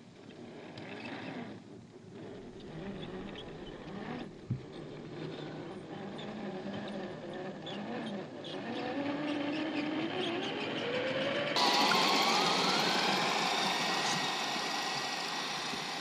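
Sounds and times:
electric motor and gears whining: 0.4 - 16.0.

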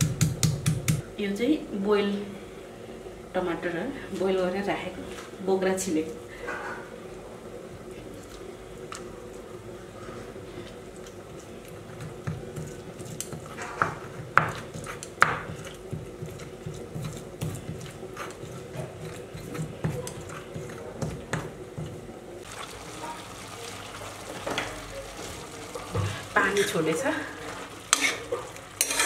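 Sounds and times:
mushrooms frying in a pan: 22.4 - 29.0.

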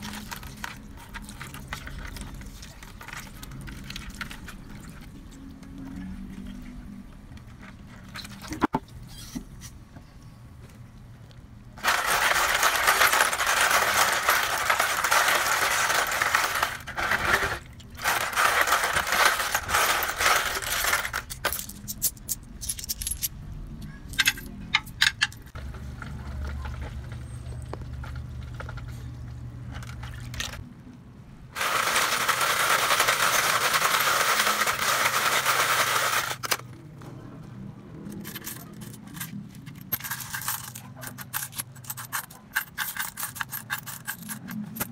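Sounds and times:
coins jingling in plastic basin: 11.8 - 23.4, 24.1 - 25.4, 31.6 - 36.6, 38.1 - 44.9.

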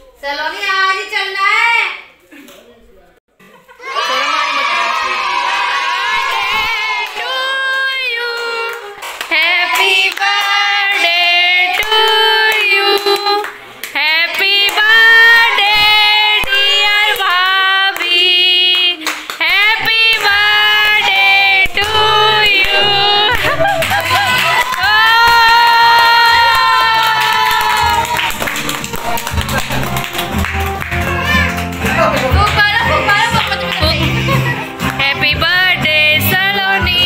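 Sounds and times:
high voice singing: 14.0 - 23.6.

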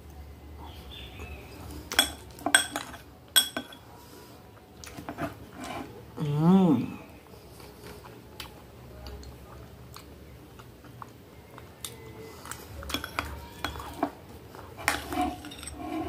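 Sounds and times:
spoon clinking against glass bowl: 1.9 - 3.8, 14.9 - 15.8.

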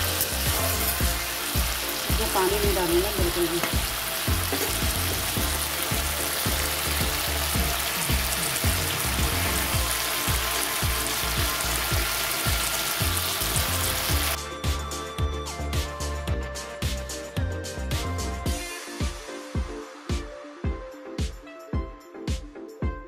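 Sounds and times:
potato slices sizzling in oil: 0.0 - 14.4
background music with steady beat: 0.0 - 23.0.

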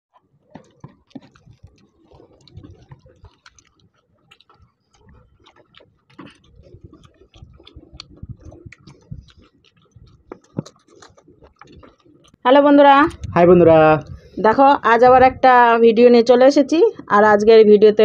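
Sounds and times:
people chewing and mouth smacks: 0.1 - 15.7
fingers working rice on plates: 0.2 - 12.4.

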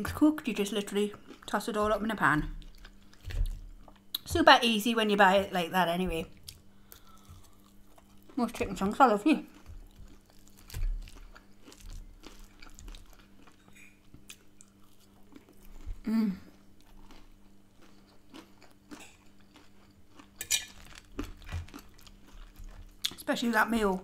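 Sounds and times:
chewing crispy food: 6.4 - 23.8
person humming mm: 16.0 - 16.5.

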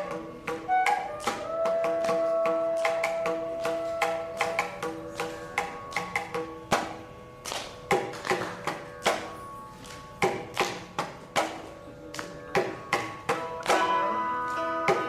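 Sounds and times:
held bamboo flute note: 0.0 - 5.5
mridangam drum strokes: 0.0 - 15.0
plucked veena notes: 0.0 - 15.0.

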